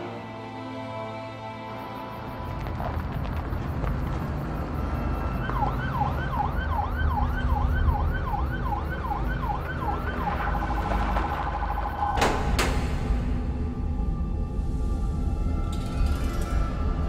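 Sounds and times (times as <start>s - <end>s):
police siren wailing: 3.8s - 12.2s
low rumble: 9.4s - 17.0s.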